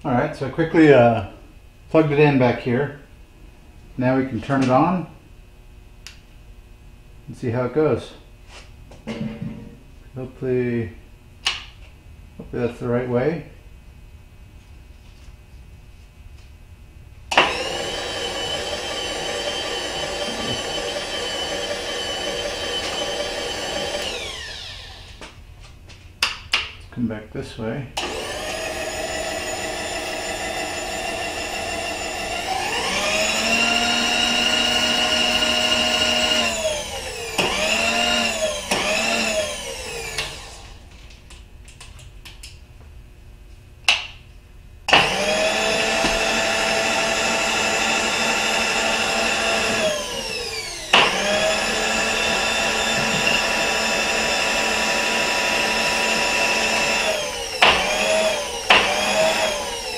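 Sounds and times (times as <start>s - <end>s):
electric motor whine: 17.3s - 25.3s, 28.0s - 40.8s, 44.9s - 59.9s.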